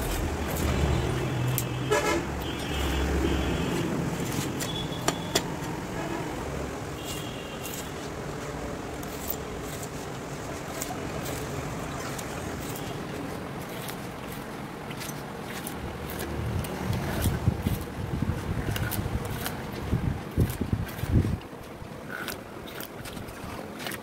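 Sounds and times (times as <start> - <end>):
road traffic noise: 0.0 - 24.0
knife and tongs clicking on rubber: 1.4 - 1.8, 18.6 - 21.2.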